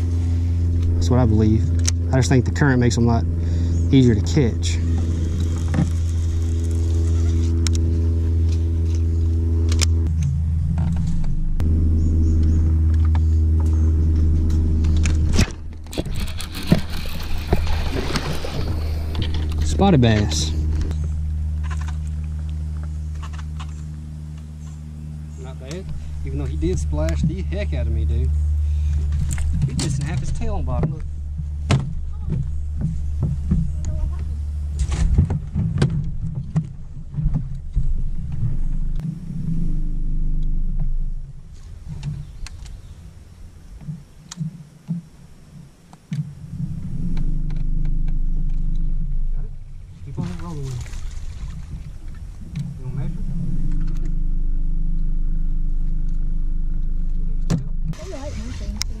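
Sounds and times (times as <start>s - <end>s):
electric motor humming: 0.0s - 35.7s, 37.5s - 45.0s, 46.1s - 59.0s
boat engine low rumble: 0.0s - 59.0s
water splashing: 16.0s - 20.2s, 49.8s - 52.8s.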